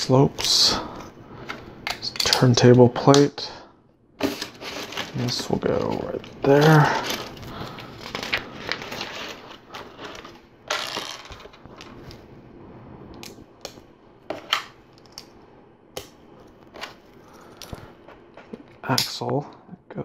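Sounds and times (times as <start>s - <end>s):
plastic pieces rustling: 4.2s - 12.2s.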